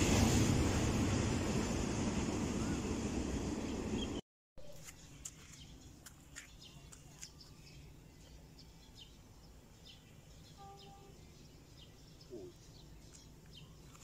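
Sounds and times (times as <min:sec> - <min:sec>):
small birds chirping: 0:03.9 - 0:14.0.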